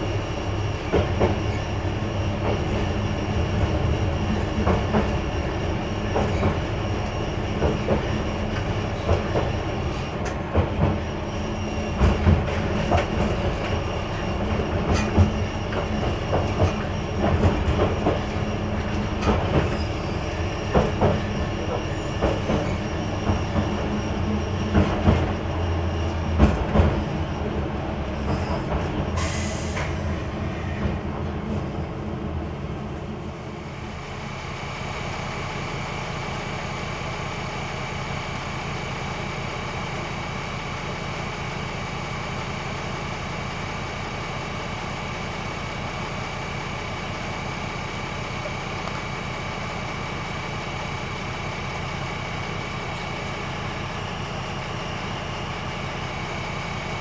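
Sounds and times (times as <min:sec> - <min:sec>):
train wheels clicking over rail joints: 0:00.8 - 0:31.2
brake squeal: 0:19.5 - 0:26.3, 0:28.2 - 0:31.0
diesel engine idling: 0:32.0 - 0:57.0.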